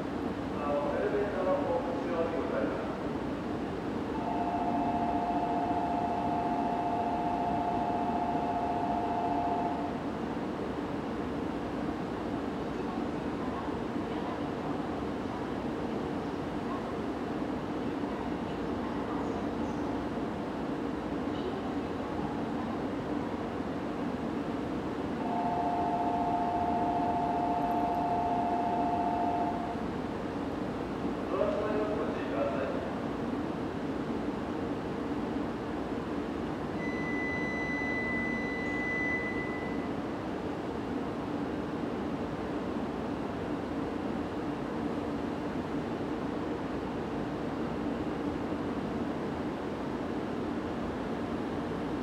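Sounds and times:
constant station hum: 0.0s - 52.0s
two-tone electronic signal: 4.2s - 9.9s, 25.3s - 29.7s, 36.8s - 40.0s.

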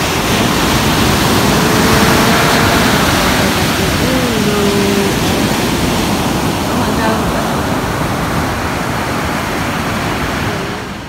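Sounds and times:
waves breaking on a beach: 0.0s - 11.0s
wind on the microphone: 0.0s - 11.0s.

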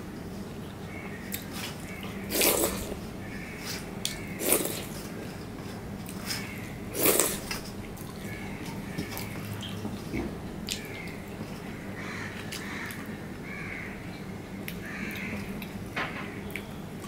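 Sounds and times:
person eating by hand: 0.0s - 13.2s.

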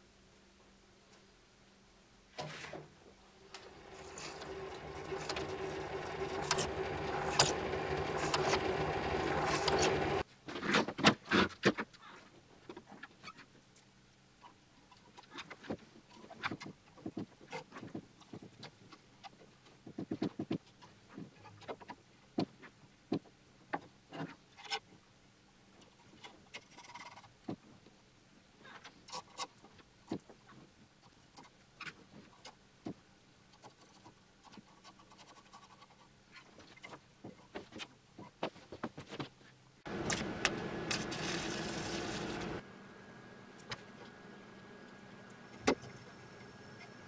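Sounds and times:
drill press cutting metal: 3.6s - 10.2s, 39.9s - 42.6s.

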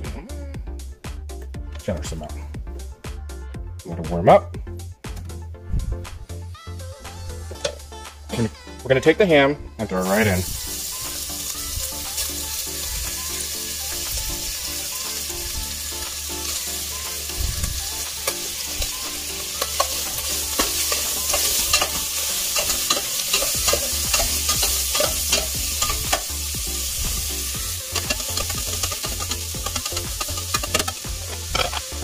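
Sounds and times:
ham sizzling in oil: 10.0s - 32.0s
metal tongs scraping a pot: 18.2s - 26.4s, 27.8s - 32.0s.

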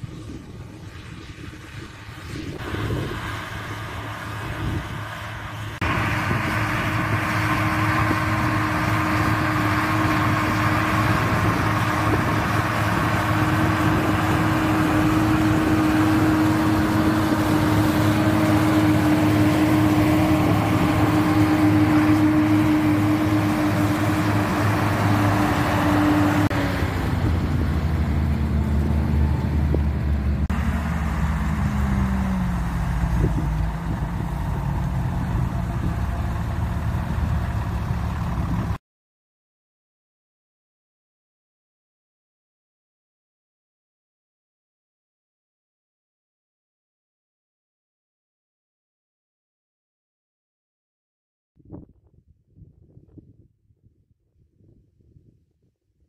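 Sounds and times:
tractor diesel engines running: 0.0s - 38.8s.

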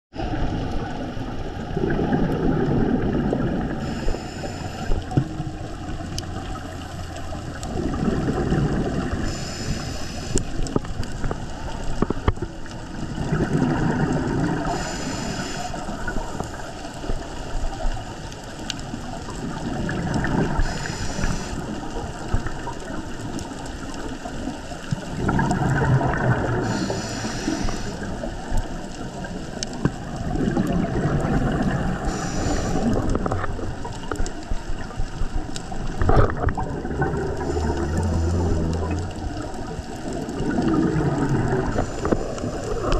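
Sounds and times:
exhaled bubbles rushing: 0.2s - 42.9s
hissing inhale through regulator: 3.5s - 5.8s, 7.9s - 10.9s, 13.4s - 17.5s, 20.0s - 22.3s, 25.0s - 28.6s, 31.5s - 34.1s, 36.3s - 39.7s, 40.6s - 42.9s.

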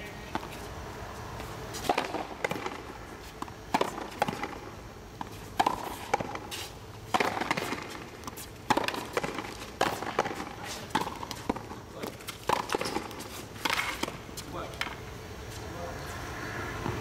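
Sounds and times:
rubber ball striking rackets and wall: 1.9s - 4.6s, 7.1s - 14.2s.

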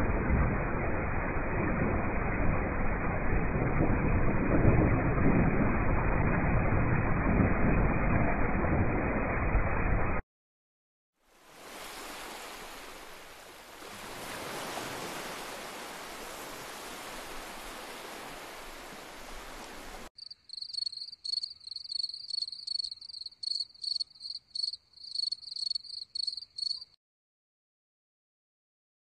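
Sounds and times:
ocean surf washing: 11.3s - 20.1s
crickets chirping: 20.2s - 27.0s.

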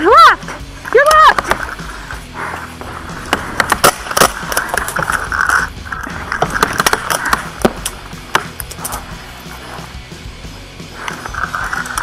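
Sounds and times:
paintball markers firing: 3.2s - 9.0s.

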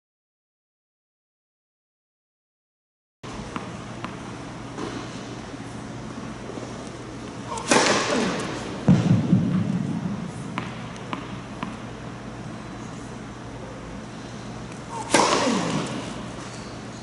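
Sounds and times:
tennis racket striking ball: 7.5s - 9.6s, 10.4s - 11.8s, 14.9s - 16.4s
deep heavy thud: 8.8s - 10.2s.

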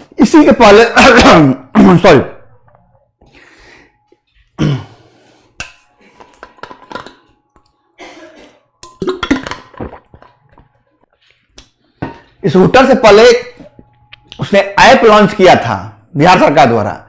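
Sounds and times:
person drinking: 9.0s - 11.6s.

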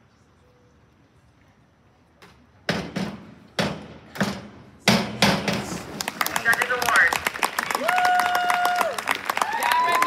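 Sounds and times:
diving board knocking and rattling: 2.7s - 6.7s.

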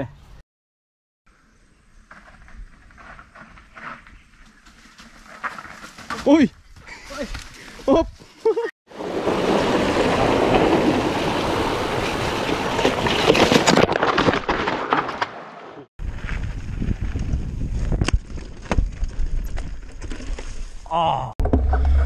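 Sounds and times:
wind on microphone: 16.0s - 19.8s.

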